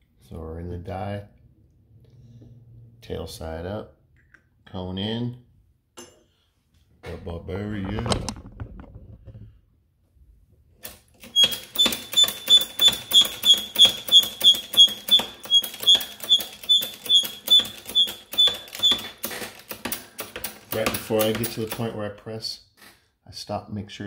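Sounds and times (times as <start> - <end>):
hydraulic pump clicking strokes: 10.8 - 22.0.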